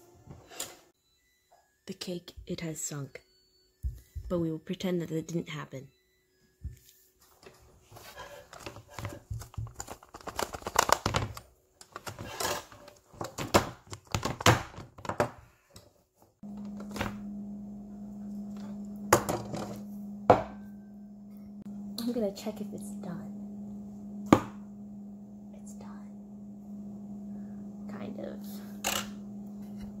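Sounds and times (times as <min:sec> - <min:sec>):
steady low hum: 0:16.4 - 0:30.0.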